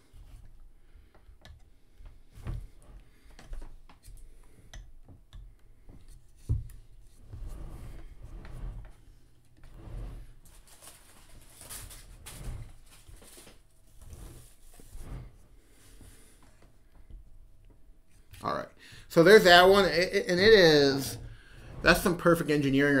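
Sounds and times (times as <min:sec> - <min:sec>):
soft scraping: 0:05.7 - 0:23.0.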